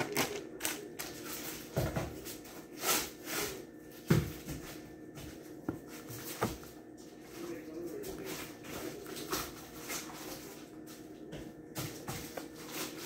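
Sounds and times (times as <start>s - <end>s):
plastic bag rustling: 0.0s - 3.6s.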